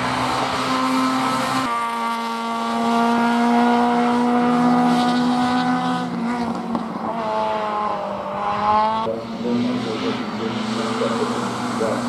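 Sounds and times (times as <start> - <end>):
race car engine at high revs: 0.0 - 12.0.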